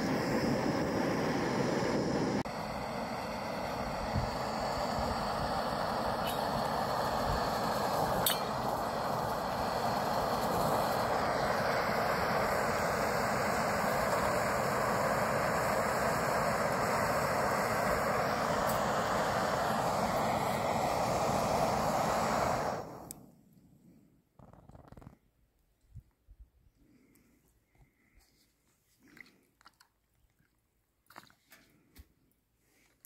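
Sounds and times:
gas stove hissing: 0.0 - 23.3
light metallic clink: 8.2 - 8.6.

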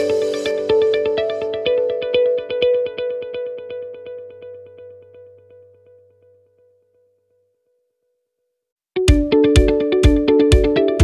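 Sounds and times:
background music repeated notes: 0.0 - 5.0, 9.0 - 11.0.

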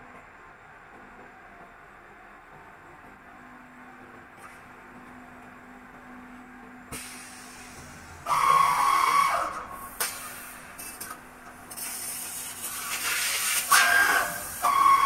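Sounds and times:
loud hiss: 11.7 - 15.0.

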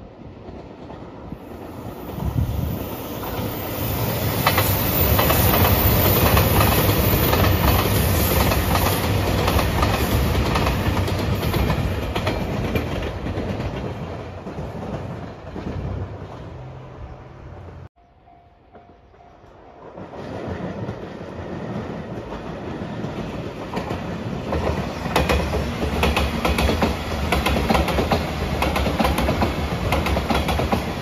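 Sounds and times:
train wheels clicking over rail joints: 20.1 - 31.0.

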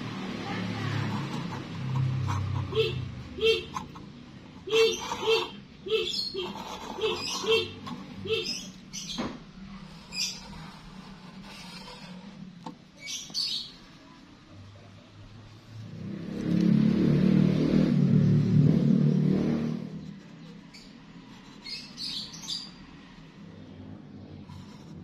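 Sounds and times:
marker squeaking on metal: 0.9 - 14.2, 20.0 - 22.8.

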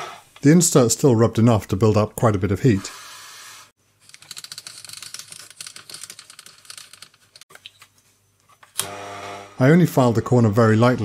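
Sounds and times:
rapid metallic clicks and rattles: 4.0 - 7.5.

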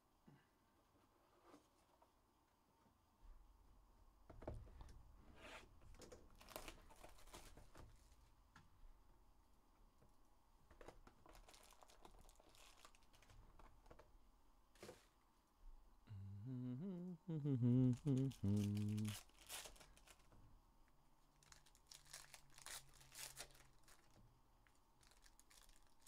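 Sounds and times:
foil packs crinkling: 6.3 - 7.8, 10.8 - 14.0, 18.6 - 20.3, 21.4 - 24.2, 25.0 - 26.0.

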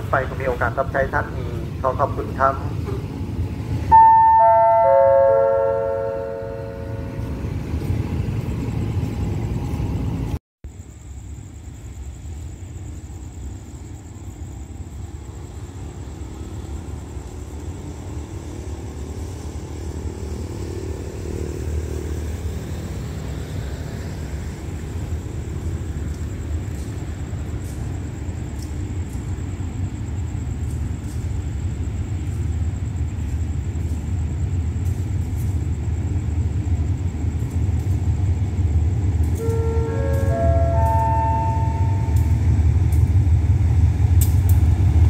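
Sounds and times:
approaching train rumble: 0.0 - 45.0
diesel train rumbling: 0.0 - 45.0
faint high whine: 3.8 - 9.8, 36.8 - 43.3
descending chime over speakers: 3.9 - 7.2, 39.4 - 42.3.

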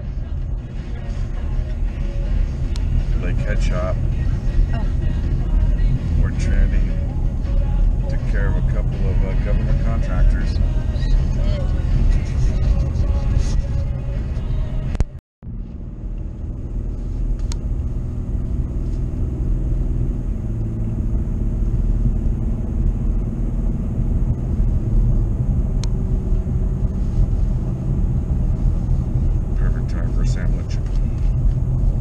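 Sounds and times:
car road and engine rumble: 0.0 - 32.0.

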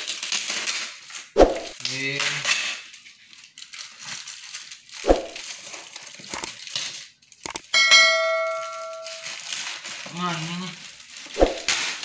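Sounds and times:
plastic wrapping rustling and tearing: 0.0 - 7.4, 8.6 - 12.0
bell-like ding: 7.8 - 9.3.

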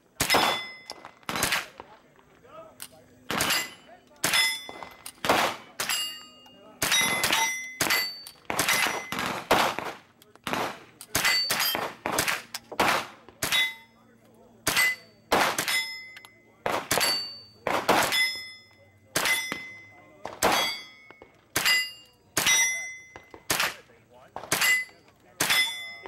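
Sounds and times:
steel targets ringing ping: 0.2 - 1.6, 3.3 - 9.3, 11.2 - 11.9, 13.4 - 23.8, 24.5 - 26.0
rifle shots: 0.2 - 1.9, 3.3 - 6.0, 6.8 - 13.7, 14.6 - 15.8, 16.6 - 18.2, 19.2 - 20.9, 23.2 - 24.8.

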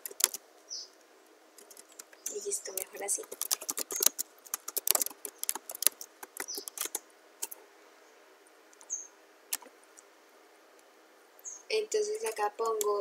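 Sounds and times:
keyboard and mouse clicking: 0.0 - 0.4, 1.6 - 7.6.

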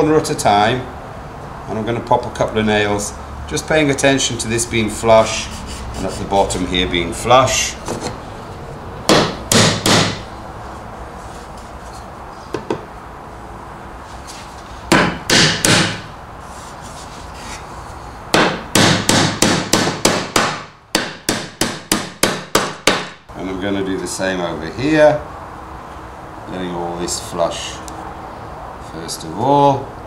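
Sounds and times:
hammer driving nails into wood: 9.1 - 10.3, 14.9 - 16.1, 18.3 - 23.2.

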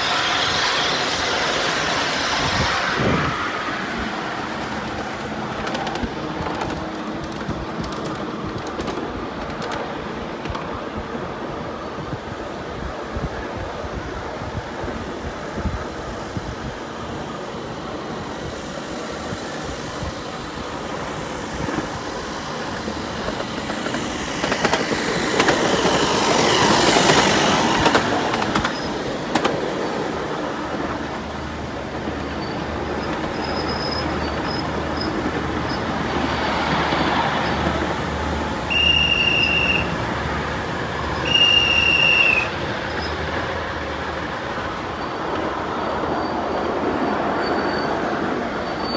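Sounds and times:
train wheels clattering on rails: 0.0 - 11.4, 17.3 - 48.9
wheels squealing on curves: 32.4 - 35.9, 46.1 - 48.9
high-pitched train whistle: 38.7 - 40.0, 41.2 - 42.6.

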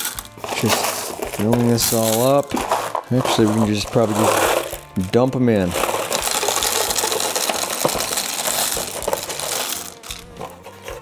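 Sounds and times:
stones clicking spread by hand: 0.0 - 10.5
stones clattering into a bowl: 0.0 - 11.0.

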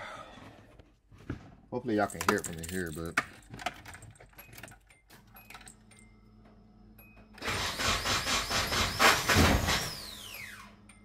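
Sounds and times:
starter motor whining: 7.4 - 10.6.

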